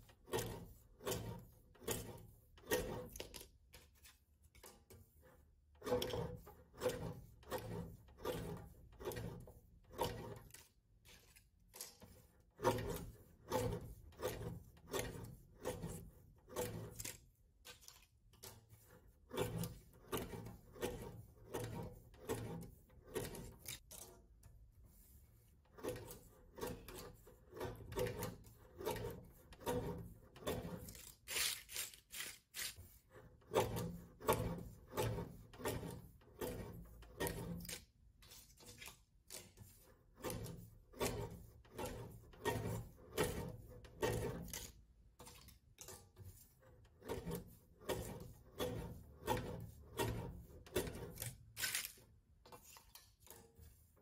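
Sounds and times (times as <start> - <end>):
hands rubbing and scraping objects: 30.8 - 32.9.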